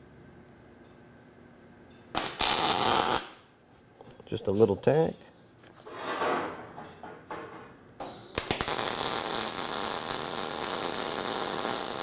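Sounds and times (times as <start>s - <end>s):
welding arc sizzling: 2.2s - 3.4s, 8.3s - 12.0s.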